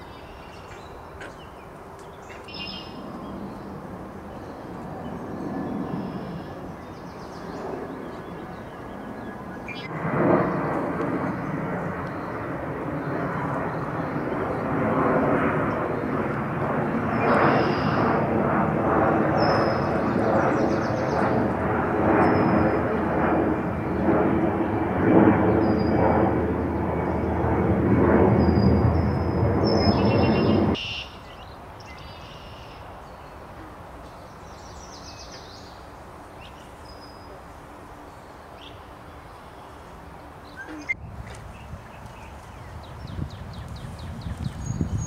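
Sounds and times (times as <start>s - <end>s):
aircraft drone: 0.0s - 45.0s
high bird calls: 28.4s - 32.8s.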